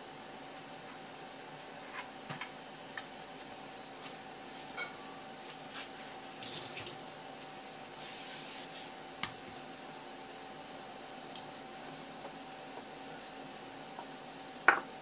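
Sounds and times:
faint steady hum: 0.0 - 15.0
hissing rustles of wet garnish: 7.9 - 9.0.

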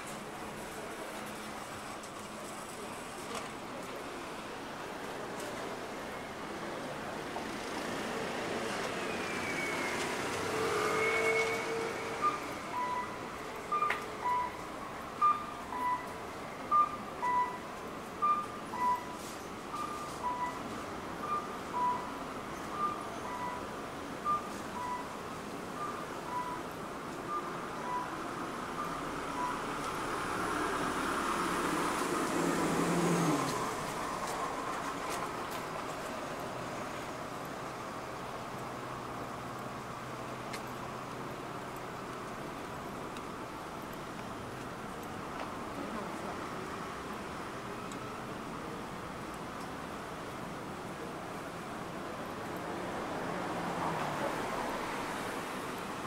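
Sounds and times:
street background noise: 0.0 - 56.0
faint reversing alarm beeps: 10.6 - 30.2
vehicle engine passing by: 29.6 - 34.7.

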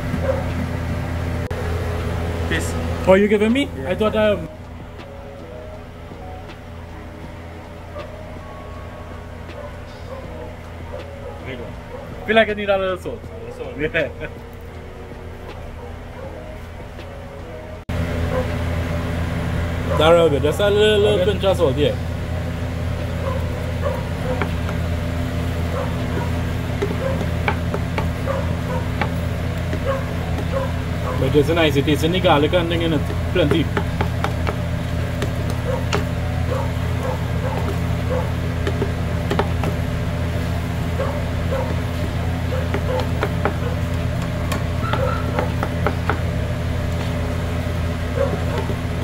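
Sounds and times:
low machine hum: 0.0 - 49.0
wooden spoon knocking metal pot: 26.0 - 30.7, 31.7 - 36.2, 36.9 - 40.0, 41.6 - 46.3.

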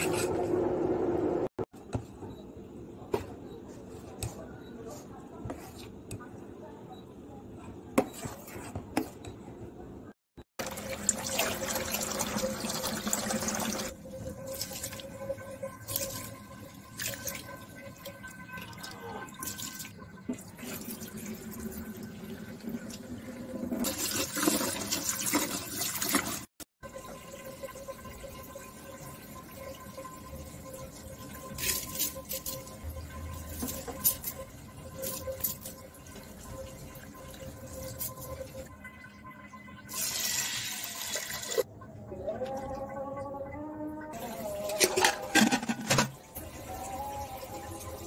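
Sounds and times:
water sloshing in pot: 44.2 - 48.0.

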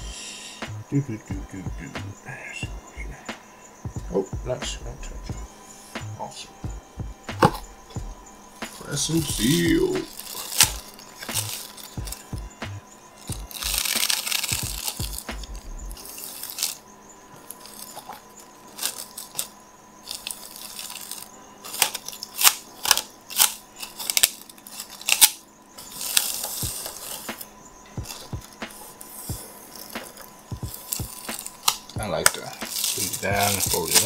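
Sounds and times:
plastic wrap crinkling: 8.7 - 12.3, 13.2 - 16.8, 17.4 - 34.0.

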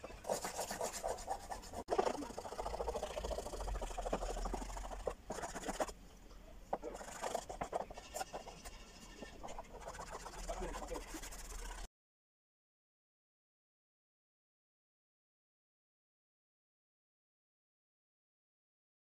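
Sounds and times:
fingertips scratching rough paper: 0.0 - 6.0, 6.7 - 11.9.

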